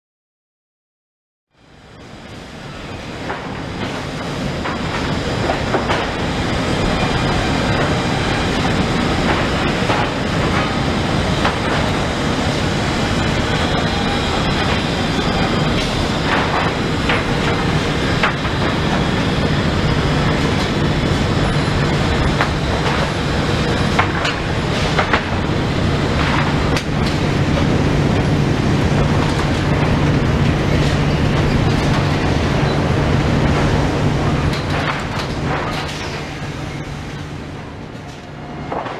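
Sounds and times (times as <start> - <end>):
low machine hum: 1.6 - 38.9
boards knocking and clattering: 15.7 - 19.1, 22.3 - 25.5.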